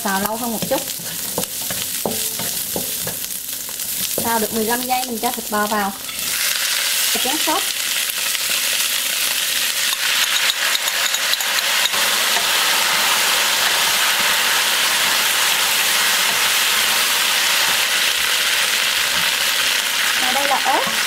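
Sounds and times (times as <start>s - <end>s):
wooden spatula scraping wok: 0.0s - 6.4s
sauce sizzling in hot wok: 0.0s - 21.0s.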